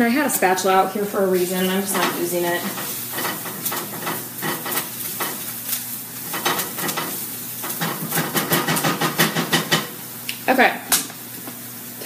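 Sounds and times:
onions sizzling in a frying pan: 0.0s - 12.0s
utensil scraping a pan: 1.3s - 9.9s.

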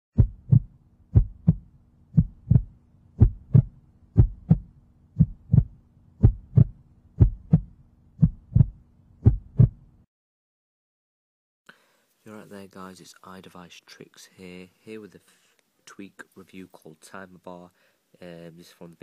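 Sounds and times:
heartbeat thumps: 0.2s - 9.9s
faint steady hum: 0.2s - 10.0s, 11.7s - 19.0s.

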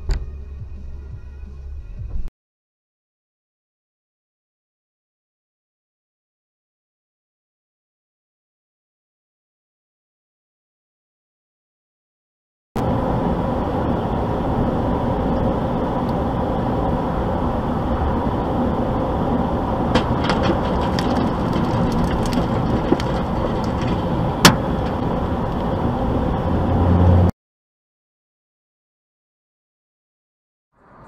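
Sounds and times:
road and engine noise in truck cab: 0.0s - 2.3s, 12.8s - 27.3s, 30.8s - 31.0s
sharp crack: 19.9s - 25.6s.

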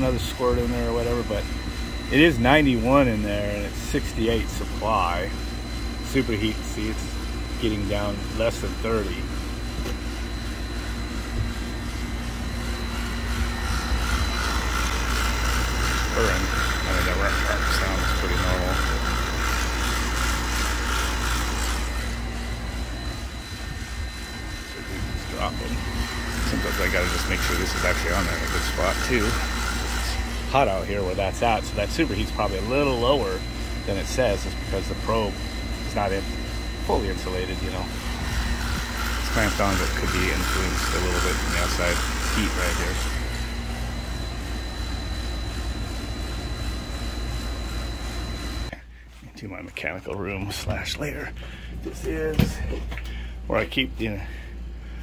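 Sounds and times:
compressor hum: 0.0s - 55.0s
condenser fan: 0.0s - 55.0s
faint high whine: 0.0s - 55.0s.

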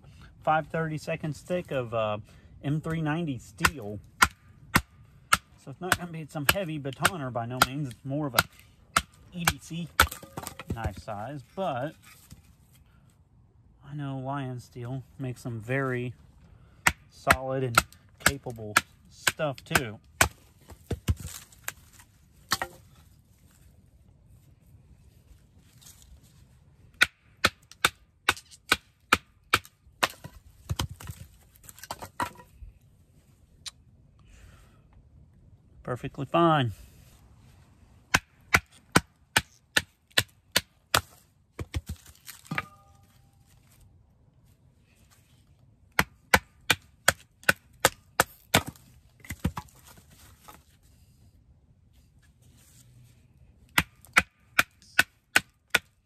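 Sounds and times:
stick splitting: 2.8s - 12.6s, 16.8s - 23.6s, 27.0s - 32.5s, 38.1s - 43.9s, 46.0s - 50.8s.

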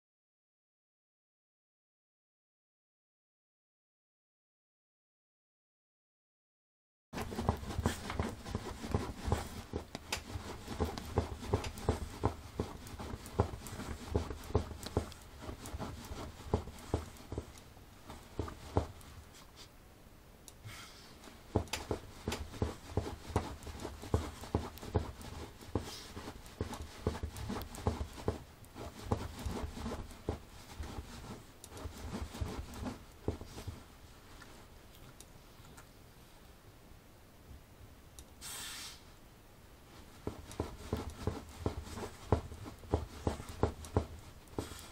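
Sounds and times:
dog scratching and rustling on cushion: 7.2s - 19.2s, 21.2s - 34.7s, 39.9s - 44.9s.

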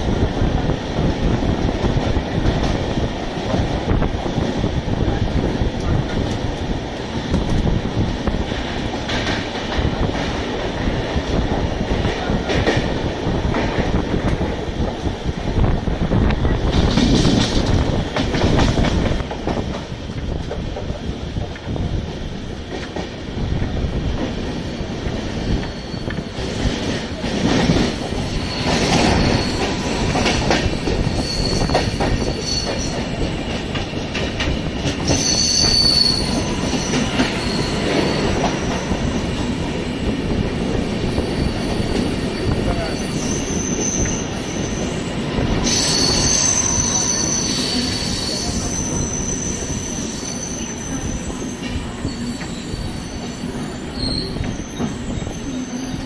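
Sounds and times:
train rail rumble: 0.0s - 56.0s.

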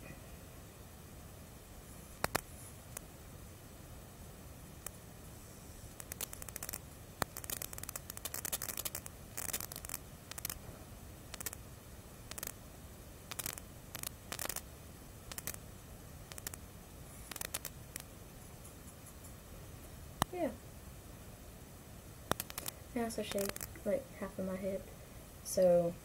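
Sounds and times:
makeup brush rubbing on face: 5.4s - 10.6s, 23.3s - 23.7s.

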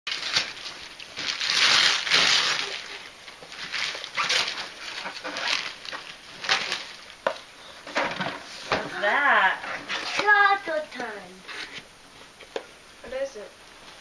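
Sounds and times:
wrapping paper tearing: 0.1s - 7.2s.

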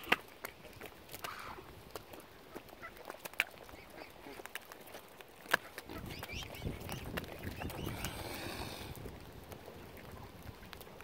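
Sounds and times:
waterfowl calling: 5.6s - 8.8s.

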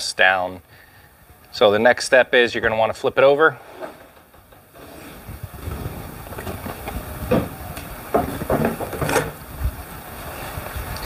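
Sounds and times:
wood scraping and rustling: 3.4s - 10.5s
wood knocking on table: 6.4s - 9.3s.

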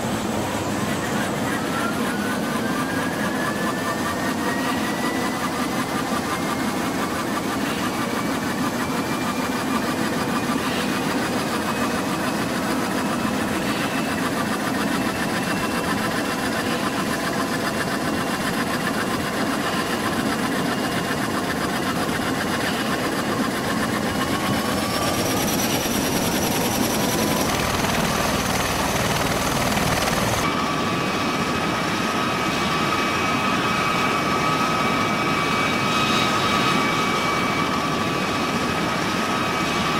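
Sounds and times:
turboshaft engines whining: 0.0s - 39.9s
rotors beating and rushing: 22.0s - 30.4s.

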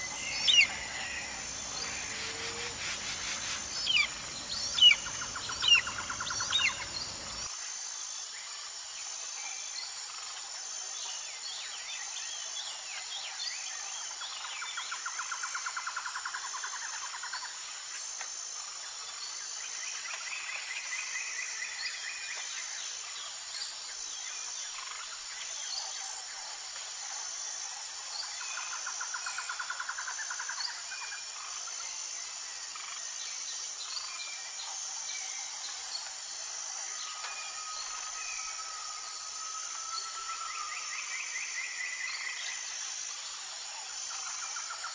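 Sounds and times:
bird chirps: 0.0s - 7.4s
crickets chirring: 0.0s - 44.9s
rapid insect trill: 0.0s - 44.9s.

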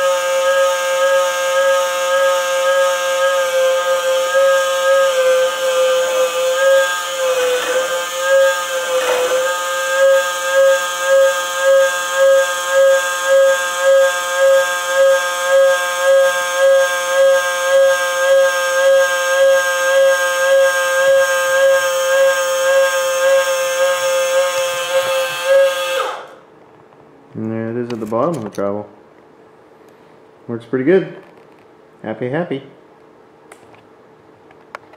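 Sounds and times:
motor whine: 0.0s - 26.5s.

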